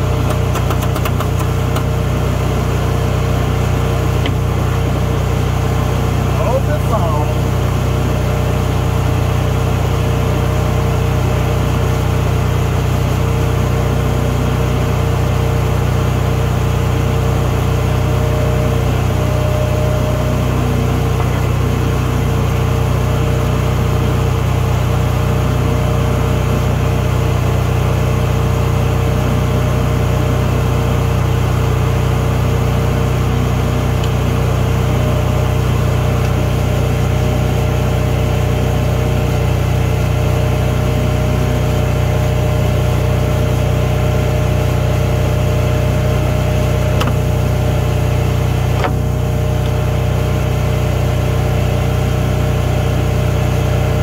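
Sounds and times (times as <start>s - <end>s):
loud machine drone: 0.0s - 54.0s.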